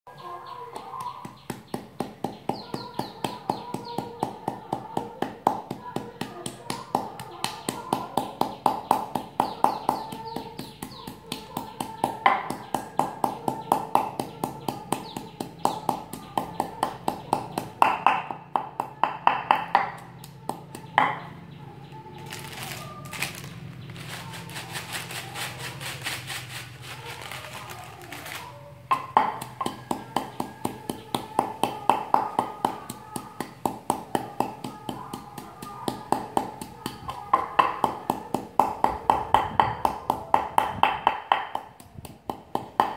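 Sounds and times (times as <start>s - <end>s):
wooden pestle pounding in mortar: 0.7s - 21.4s, 28.3s - 42.9s
rustling and handling noises: 21.9s - 28.9s.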